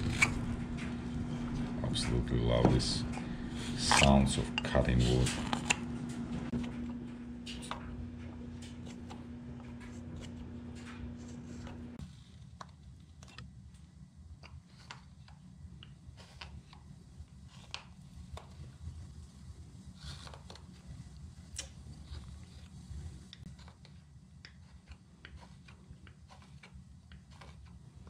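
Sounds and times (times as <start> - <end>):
low steady hum: 0.0 - 16.1
knife carving wood: 14.4 - 18.7, 20.0 - 21.0, 23.4 - 28.0.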